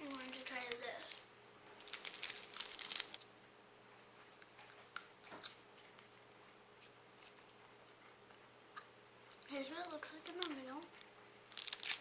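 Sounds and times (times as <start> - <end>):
plastic wrapper crinkling: 0.0 - 3.3, 9.4 - 12.0.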